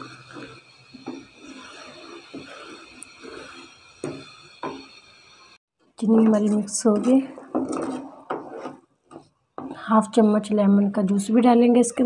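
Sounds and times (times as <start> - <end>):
syrup hissing in pan: 0.0 - 5.6.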